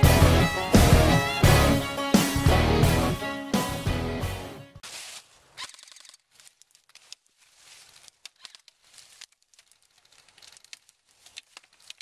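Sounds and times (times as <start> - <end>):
dry leaves rustling and crunching: 4.8 - 12.0.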